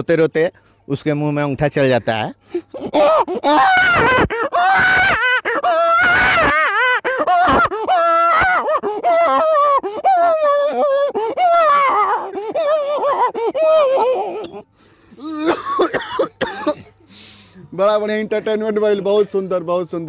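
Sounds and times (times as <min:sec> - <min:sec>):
man imitating crying baby: 0:02.7 - 0:16.0.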